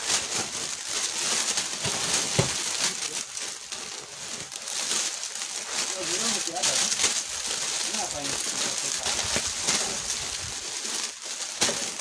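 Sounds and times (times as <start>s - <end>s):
plastic bags rustling: 0.0s - 12.0s.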